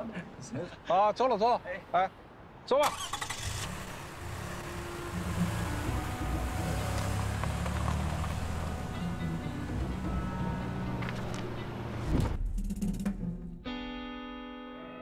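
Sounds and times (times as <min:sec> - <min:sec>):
car engine rumbling: 0:02.9 - 0:12.4.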